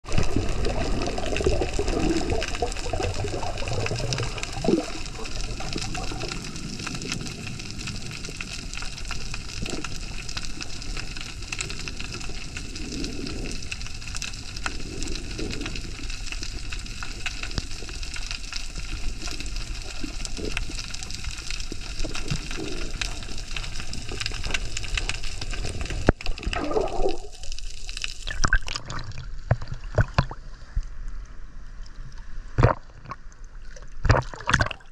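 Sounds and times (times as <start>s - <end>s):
underwater water noise: 0.0s - 34.9s
water sloshing and splashing: 26.1s - 30.6s, 31.9s - 34.9s.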